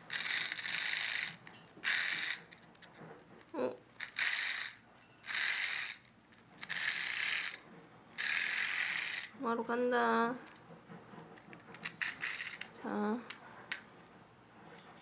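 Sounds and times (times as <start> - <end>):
wind-up key ratchety clicking: 0.1 - 2.4, 4.0 - 6.0, 6.6 - 7.6, 8.2 - 9.3, 11.8 - 12.7.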